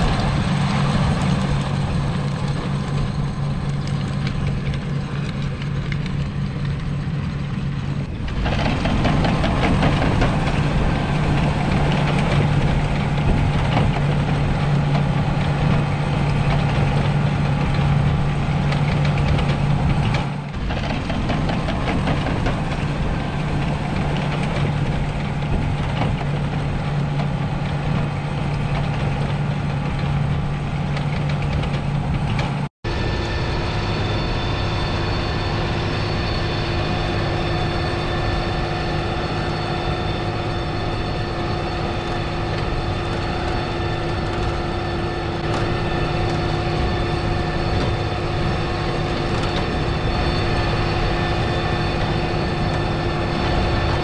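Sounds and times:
high steady whine: 0.0 - 54.0
tractor diesel engine running: 0.0 - 54.0.

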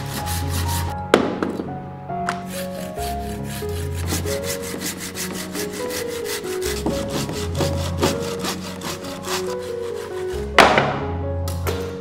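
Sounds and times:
hand saw cutting log: 0.0 - 1.0, 2.7 - 10.8.

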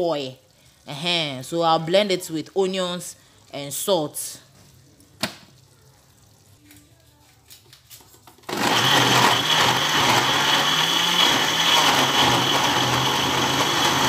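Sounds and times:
blender running with high whine: 8.5 - 14.0.

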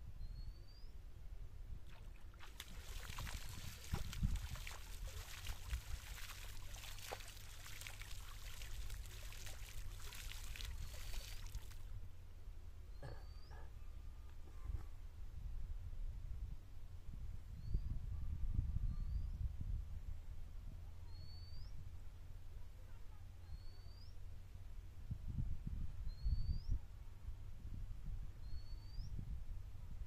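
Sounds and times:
water splashing: 1.9 - 11.9.

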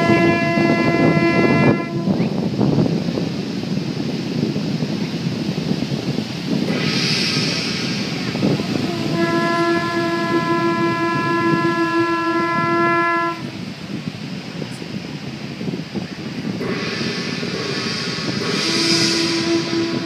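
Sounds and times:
conch shell horn long note: 0.0 - 2.2, 8.8 - 13.4, 18.6 - 20.0
background rushing noise: 0.0 - 20.0.

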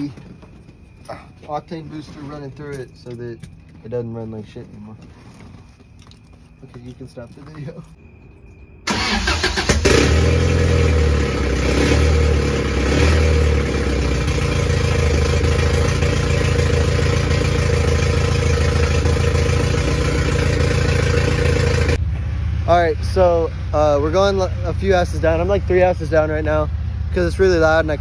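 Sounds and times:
car engine starting and revving: 8.9 - 22.0.

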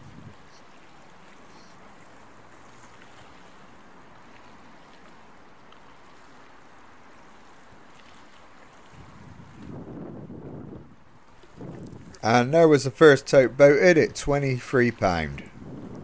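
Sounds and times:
sea water washing around boat: 0.0 - 16.0
wind: 0.0 - 16.0
faint ticks: 4.2 - 6.2.

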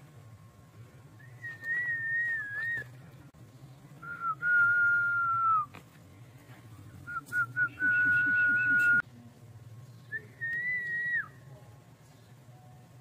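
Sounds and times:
person whistling: 1.2 - 2.8, 4.0 - 5.7, 7.1 - 9.0.

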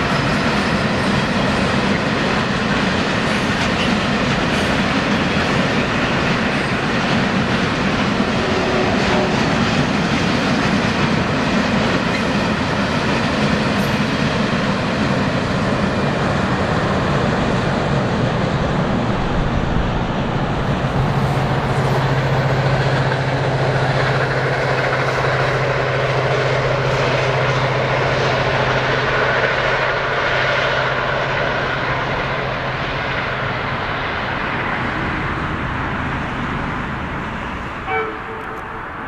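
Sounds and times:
train rumble and wheel noise: 0.0 - 39.0
train horn toot: 8.3 - 9.6, 37.8 - 39.0.

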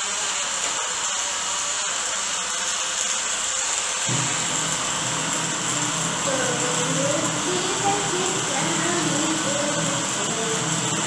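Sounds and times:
blender motor whirring: 0.0 - 11.0
low hum: 4.1 - 11.0.

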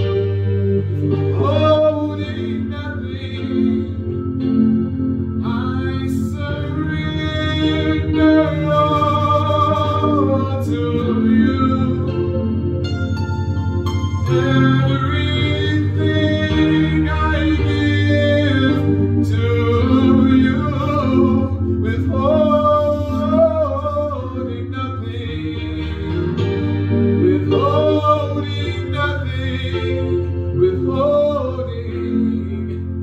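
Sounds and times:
man singing gospel song: 0.0 - 4.6, 5.4 - 12.7, 14.2 - 33.0
sustained keyboard chords: 0.0 - 33.0.

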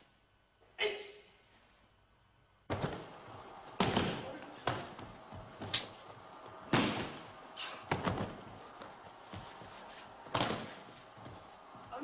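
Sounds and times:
bodies slapping a mat: 2.7 - 12.0.

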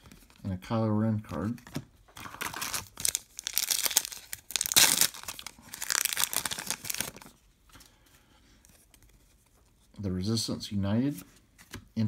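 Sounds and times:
wrapper tearing and crinkling: 2.2 - 7.3.

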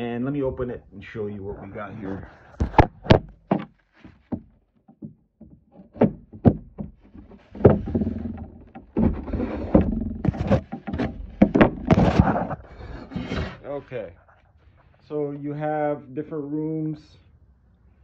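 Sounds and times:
wood scraping and rubbing: 1.2 - 14.9
wooden knocks: 2.5 - 13.6.

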